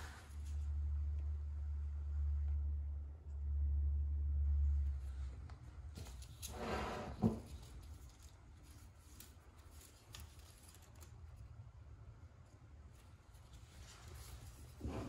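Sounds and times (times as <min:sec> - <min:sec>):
low handling rumble: 0:00.0 - 0:08.8
leaves rustling: 0:07.5 - 0:11.4.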